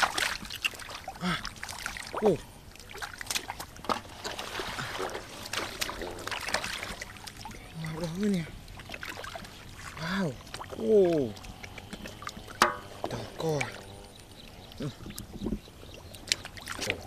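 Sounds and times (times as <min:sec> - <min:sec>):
hands splashing in muddy water: 0:00.0 - 0:08.1
mud squelches: 0:00.0 - 0:17.0.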